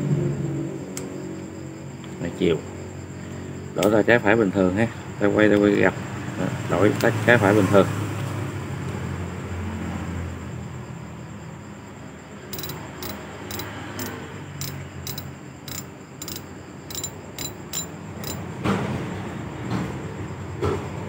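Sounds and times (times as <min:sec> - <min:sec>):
metallic reel clicks: 0:12.6 - 0:18.4.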